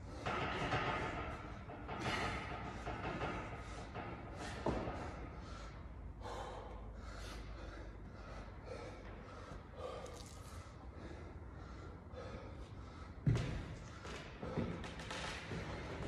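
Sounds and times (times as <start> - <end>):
person breathing hard: 2.0 - 14.8.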